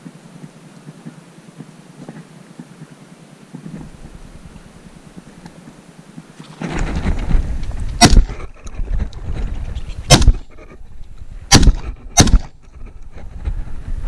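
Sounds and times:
wind noise: 0:03.5 - 0:14.0
shotgun shots: 0:08.0 - 0:08.5, 0:10.1 - 0:10.5, 0:11.5 - 0:12.6.

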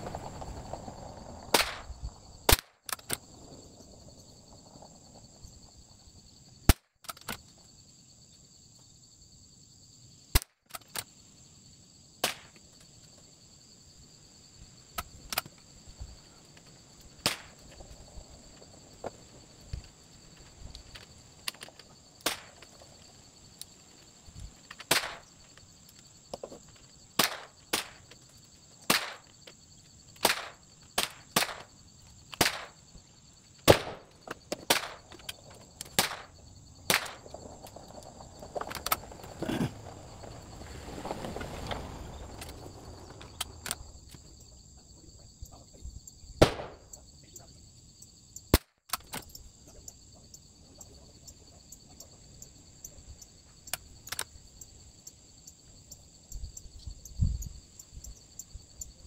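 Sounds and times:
rough rustle: 0:00.0 - 0:02.2, 0:36.9 - 0:44.0
high insect drone: 0:00.0 - 0:59.0
sharp cracks and clicks: 0:01.5 - 0:03.3, 0:06.6 - 0:07.5, 0:10.3 - 0:11.1, 0:12.2 - 0:12.6, 0:15.0 - 0:15.6, 0:17.1 - 0:17.8, 0:20.7 - 0:22.8, 0:24.6 - 0:26.0, 0:27.2 - 0:28.2, 0:28.8 - 0:29.5, 0:30.2 - 0:31.7, 0:32.3 - 0:32.8, 0:33.6 - 0:37.3, 0:43.2 - 0:44.2, 0:46.4 - 0:46.9, 0:48.5 - 0:49.4, 0:53.7 - 0:54.3.

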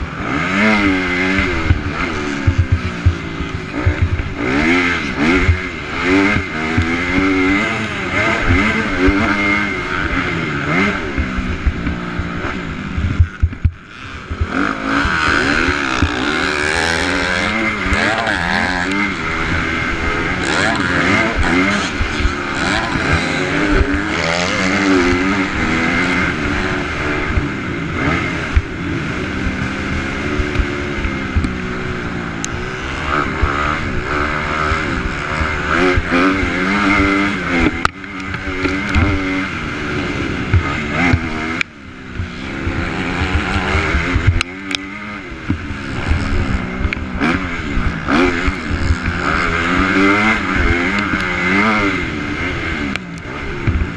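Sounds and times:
motocross bike engine revving: 0:00.0 - 0:53.9.

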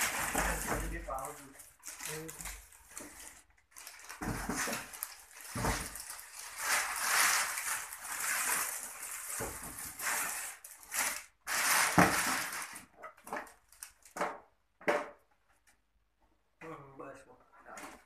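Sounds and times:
plastic bag crinkling: 0:00.0 - 0:14.2.

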